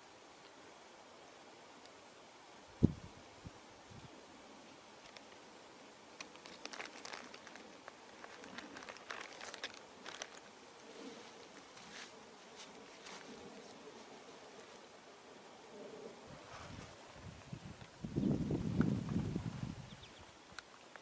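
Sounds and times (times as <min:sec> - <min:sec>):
plastic package crinkling: 0:06.2 - 0:10.5.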